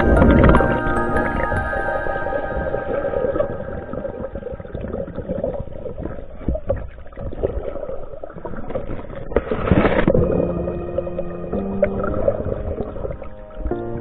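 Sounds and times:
background music: 0.0 - 4.8, 10.2 - 14.0
muffled water sloshing: 0.0 - 14.0.

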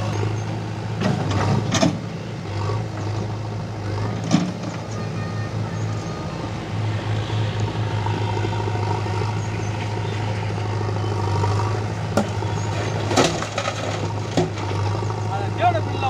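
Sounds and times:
diesel engines running: 0.0 - 16.0
loader bucket knocks: 12.2 - 14.8.

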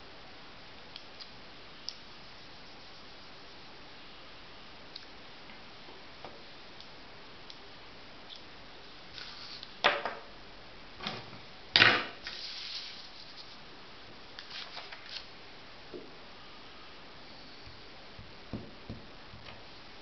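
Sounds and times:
paper rustling: 14.4 - 15.3.

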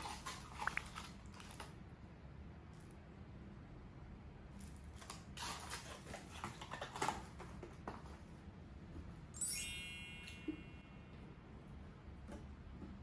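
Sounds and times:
bright ringing tone: 9.4 - 11.3.

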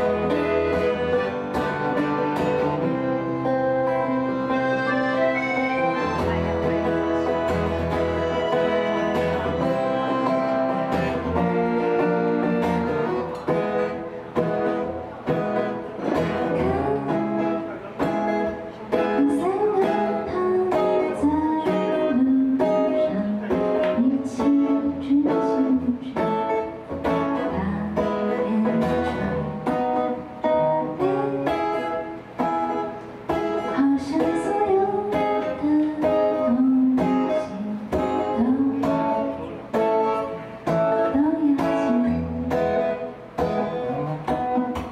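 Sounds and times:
strummed acoustic guitar: 0.0 - 44.9
button accordion chords: 2.5 - 14.0
woman singing: 16.2 - 17.6, 18.9 - 31.9, 33.6 - 39.5, 40.7 - 43.1.

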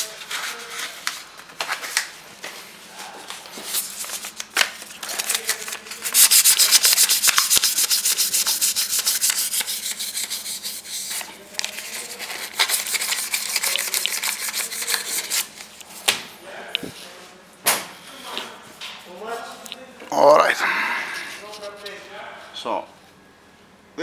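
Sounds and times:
paper scrubbing metal: 5.0 - 15.7.

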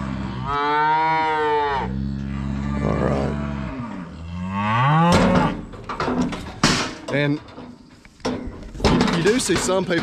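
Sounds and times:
cattle mooing: 0.0 - 5.7.

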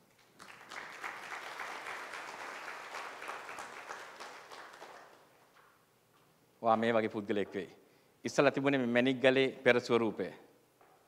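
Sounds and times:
audience applauding: 0.2 - 5.4.

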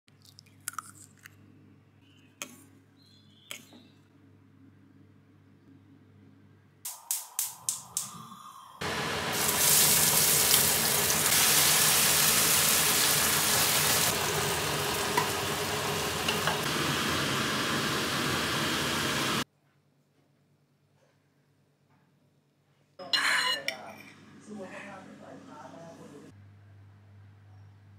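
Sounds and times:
egg sizzling in a hot pan: 8.8 - 19.4.

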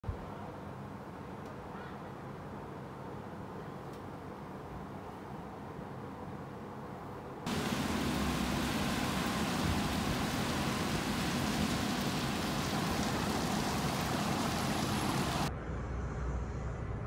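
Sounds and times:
steady rain falling: 7.5 - 15.5.

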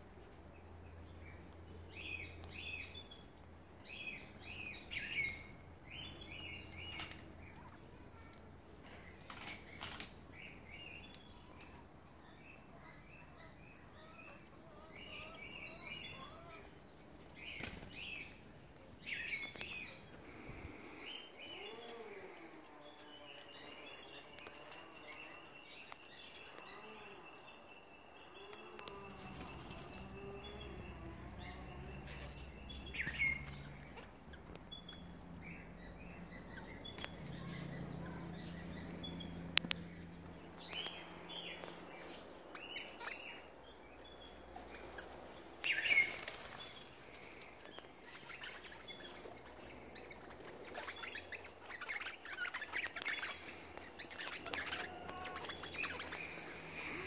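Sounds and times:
low rising and falling bird calls: 9.0 - 57.0.

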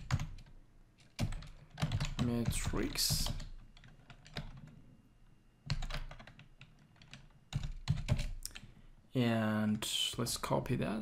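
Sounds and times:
typing on computer keyboard: 0.0 - 4.7, 5.7 - 8.7.

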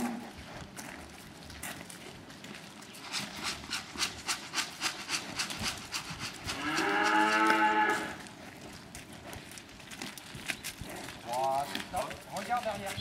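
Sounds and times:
heifer mooing: 0.0 - 0.4, 6.5 - 8.3
footsteps on gravel: 0.0 - 13.0.

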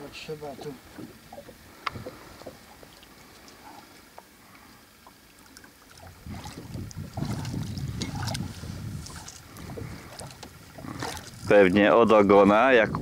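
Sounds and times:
wind buffeting microphone: 0.5 - 2.7, 6.0 - 13.0
eel thrashing and splashing: 0.7 - 11.6
small splashes and clicks: 1.0 - 11.5.

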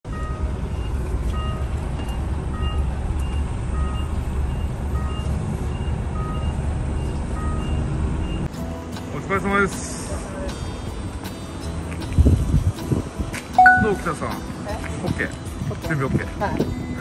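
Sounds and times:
two-tone reversing warning beeps: 0.1 - 8.5, 13.6 - 14.1.

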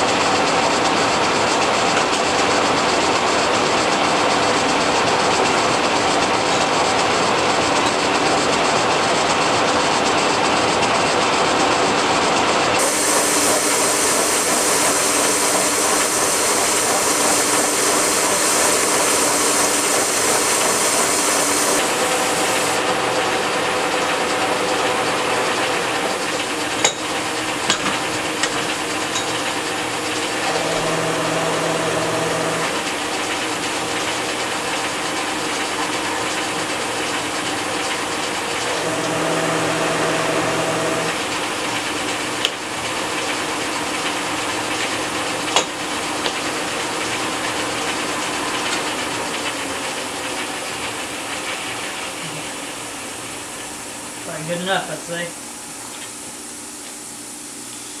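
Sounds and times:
milling cutter grinding steel: 12.8 - 35.3, 36.1 - 42.2
milling machine gearing: 12.8 - 52.6.

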